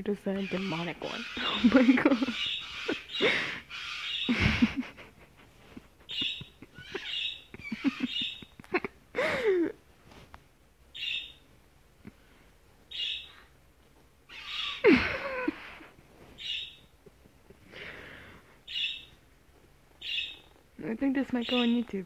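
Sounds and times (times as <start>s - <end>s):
cockatoo calling: 0.4s - 4.8s, 6.0s - 9.0s, 14.3s - 16.8s.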